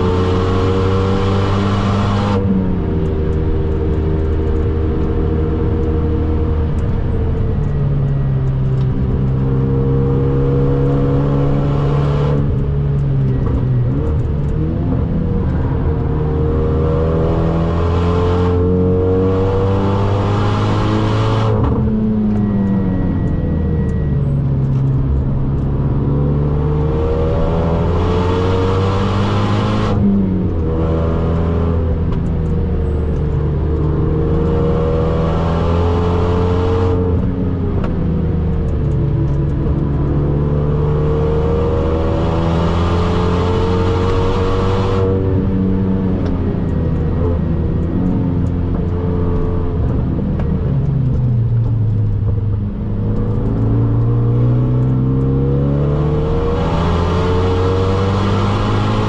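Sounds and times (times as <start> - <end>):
car engine revving hard: 0.0 - 2.5, 40.7 - 45.4, 53.2 - 59.0.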